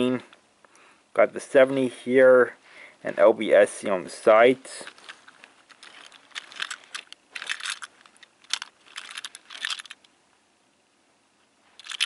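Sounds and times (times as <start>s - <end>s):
toy train clicks and rattles: 4.9s - 10.0s, 11.8s - 12.0s.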